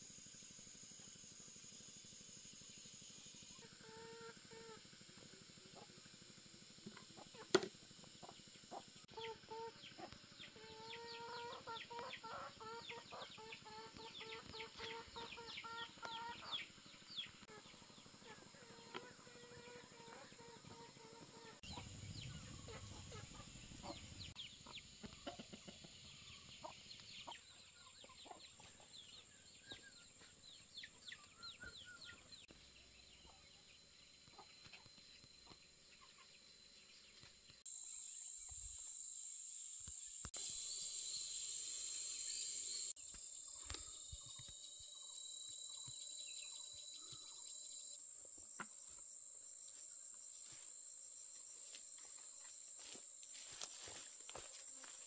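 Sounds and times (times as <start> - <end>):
high-pitched insect drone: 0.0 - 24.6, 37.6 - 55.0
chickens clucking: 6.9 - 32.5, 48.4 - 49.0.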